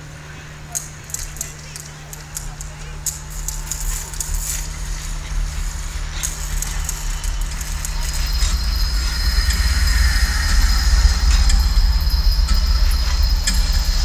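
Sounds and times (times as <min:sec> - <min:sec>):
tram rumbling on rails: 0:00.0 - 0:14.0.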